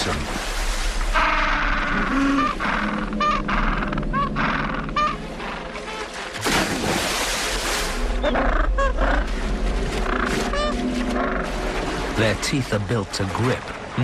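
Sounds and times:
loud splashing rush: 0:06.4 - 0:08.2.

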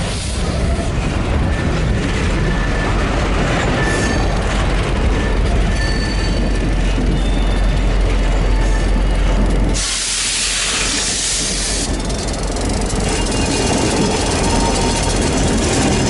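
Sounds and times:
steel wheels rumbling on rail: 0:00.0 - 0:16.0
high wheel squeals: 0:03.6 - 0:04.5, 0:05.1 - 0:16.0.

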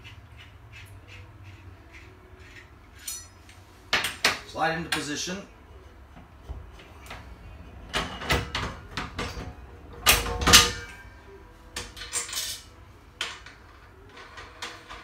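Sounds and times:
metal clinks and clunks: 0:03.0 - 0:04.2.

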